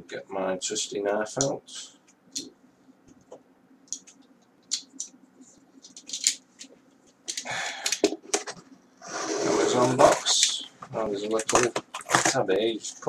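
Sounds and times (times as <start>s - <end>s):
cardboard scraping and rustling: 9.0s - 12.4s.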